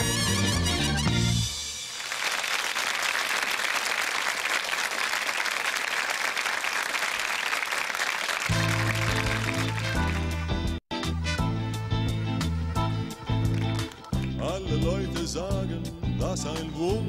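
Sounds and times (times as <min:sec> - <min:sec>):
audience applauding: 0:01.9 - 0:10.8, 0:13.4 - 0:14.4.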